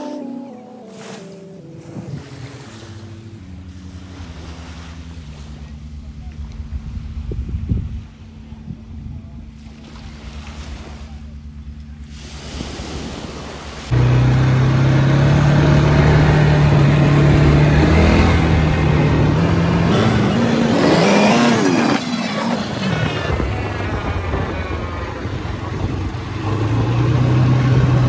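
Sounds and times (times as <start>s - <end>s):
quad bike engine running: 13.9s - 28.0s.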